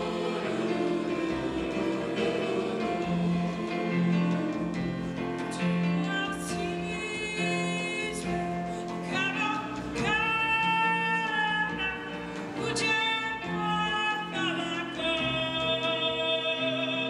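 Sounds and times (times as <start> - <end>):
woman singing: 5.9 - 17.0.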